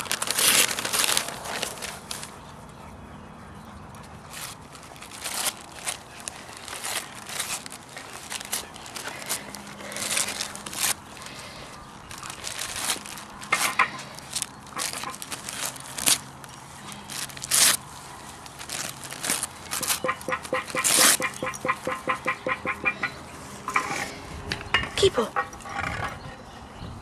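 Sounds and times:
wrapping paper crinkling and tearing: 0.0s - 2.4s, 4.3s - 22.8s.

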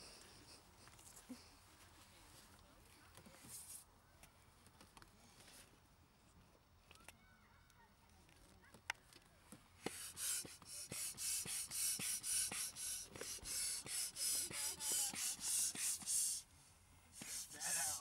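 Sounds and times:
hand air pump whooshing: 9.8s - 16.5s, 17.2s - 18.0s.

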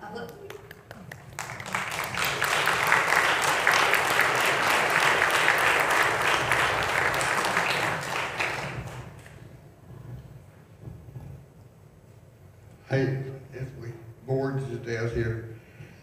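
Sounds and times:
audience applauding: 0.2s - 9.4s.

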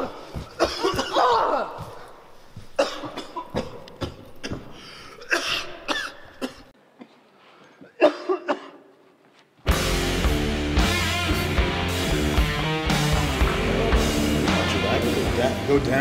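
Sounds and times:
man coughing: 0.5s - 1.8s, 2.8s - 7.2s, 7.8s - 8.9s.

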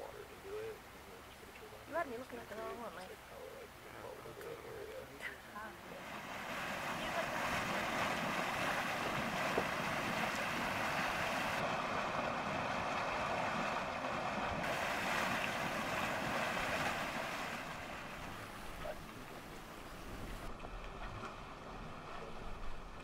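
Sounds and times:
mud pot steaming and hissing: 5.9s - 13.6s, 14.2s - 20.5s.

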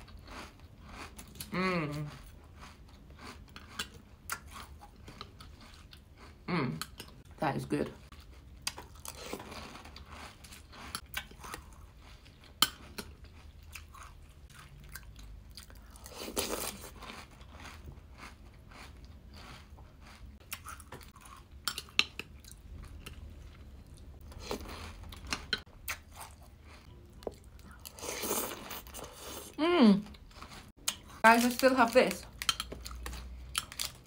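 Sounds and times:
chewing and crunching cereal: 0.0s - 34.0s.

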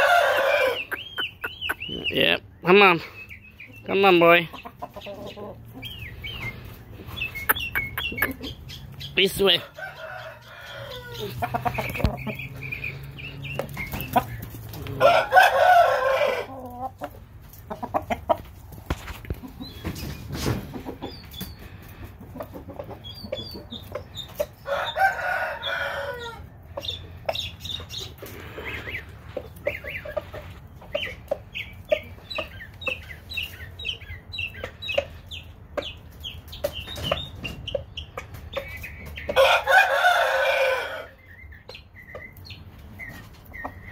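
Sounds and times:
rooster crowing: 0.0s - 1.0s, 9.6s - 11.5s, 15.0s - 16.6s, 24.6s - 26.5s, 39.4s - 41.2s
short high clucking calls: 0.8s - 2.2s, 7.2s - 9.2s.

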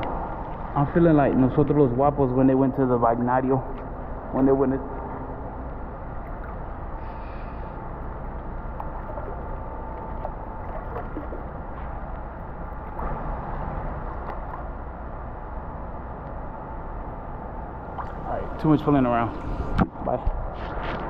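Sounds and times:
steady low rumble: 0.0s - 21.0s
pool water sloshing and splashing: 3.7s - 15.6s, 17.8s - 20.2s.

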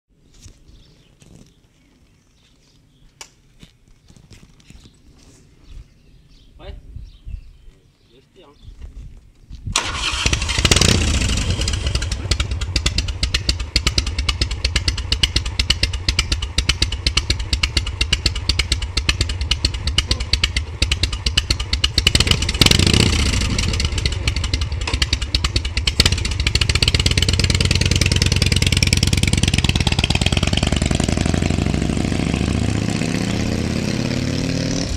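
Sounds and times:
motorcycle engine idling and revving: 9.7s - 34.9s
motorcycle accelerating through gears: 9.8s - 34.9s.

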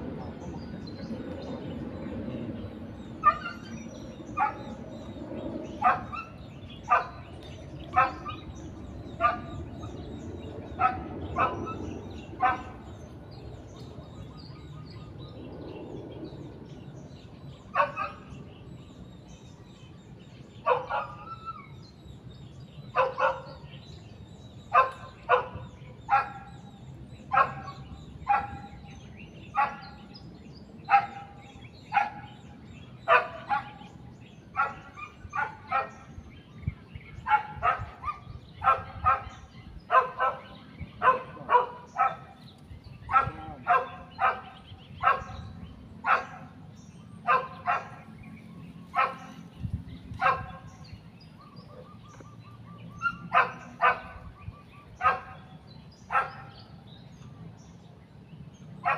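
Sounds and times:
dog barking: 5.8s - 7.2s, 9.2s - 9.6s, 10.8s - 11.8s, 12.4s - 12.8s, 17.8s - 18.3s, 20.6s - 21.3s, 22.9s - 23.6s, 24.7s - 26.5s, 27.3s - 28.8s, 29.6s - 29.9s, 30.9s - 32.3s, 33.1s - 33.8s, 34.6s - 36.1s, 37.2s - 42.4s, 43.1s - 46.5s, 47.2s - 48.1s, 48.9s - 49.4s, 50.2s - 50.7s, 53.0s - 54.3s, 55.0s - 55.5s, 56.1s - 56.6s.

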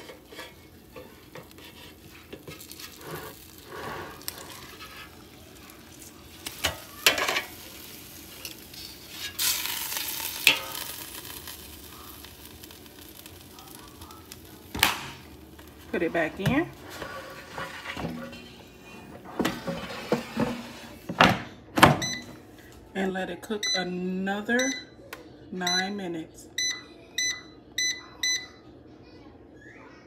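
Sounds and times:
steak sizzling: 0.0s - 17.9s.

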